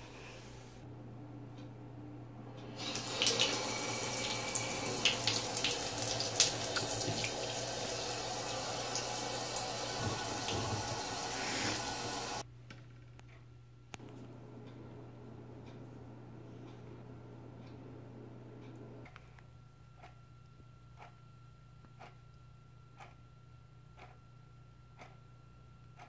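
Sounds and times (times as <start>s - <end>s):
faucet running into tub: 2.8s - 12.4s
water splashing: 2.8s - 12.4s.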